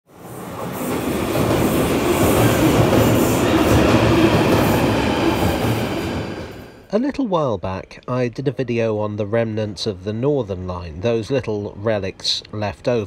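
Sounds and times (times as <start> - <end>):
subway train rumble: 0.1 - 6.9.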